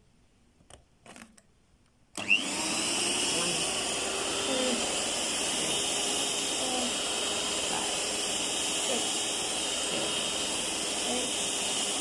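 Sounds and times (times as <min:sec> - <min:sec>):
stand mixer motor running: 0:02.2 - 0:12.0.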